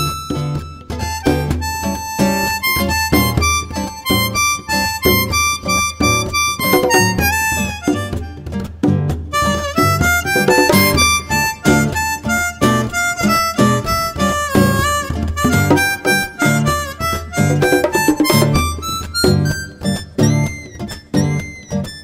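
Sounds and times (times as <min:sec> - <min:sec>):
harmonica melody: 0:00.0 - 0:22.0
nylon-string guitar: 0:00.0 - 0:22.0.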